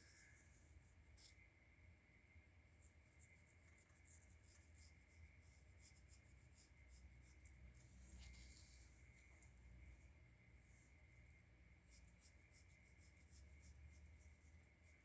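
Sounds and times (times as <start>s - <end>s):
pencil scratching on paper: 2.8s - 8.9s, 11.8s - 15.0s.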